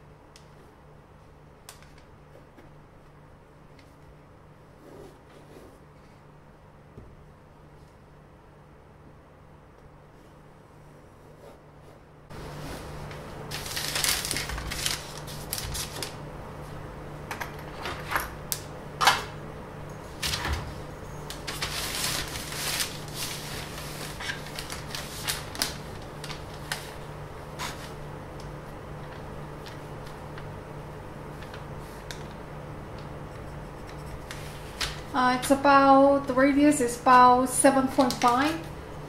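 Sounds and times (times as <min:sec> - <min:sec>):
steady low hum: 0:00.0 - 0:39.0
pencil scratching on paper: 0:33.3 - 0:34.6.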